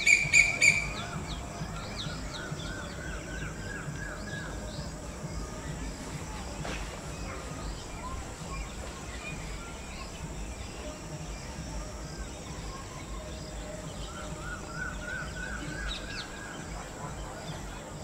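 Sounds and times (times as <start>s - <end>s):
birds chirping: 0.0s - 18.0s.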